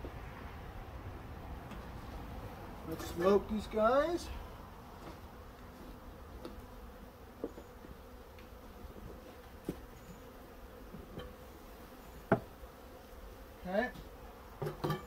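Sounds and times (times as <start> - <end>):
bees buzzing: 2.5 - 14.8.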